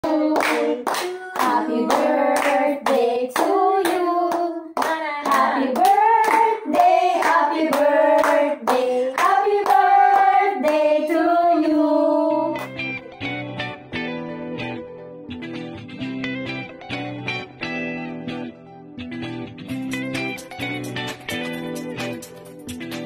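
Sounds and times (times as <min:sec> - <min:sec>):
hands clapping steady beat: 0:00.0 - 0:11.2, 0:12.6 - 0:12.9, 0:19.9 - 0:23.0
women singing together: 0:00.0 - 0:12.7.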